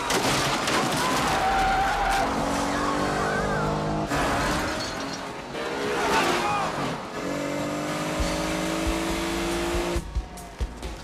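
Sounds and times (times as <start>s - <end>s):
debris clattering: 0.0s - 2.2s, 4.1s - 5.6s
car smashing through wooden crates: 0.0s - 2.7s, 4.0s - 7.0s
car engine revving hard: 5.6s - 10.0s.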